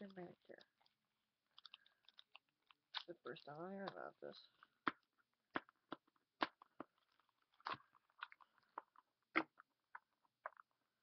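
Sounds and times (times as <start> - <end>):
plastic packaging crackling: 0.0 - 5.0.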